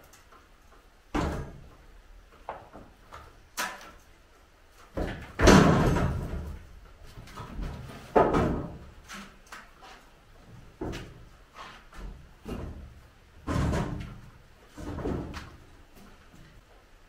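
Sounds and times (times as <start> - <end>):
formwork crashing down: 5.3 - 6.5.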